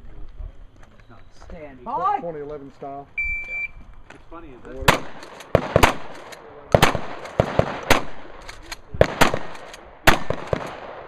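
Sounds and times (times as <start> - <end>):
shotgun shots: 4.8 - 11.0.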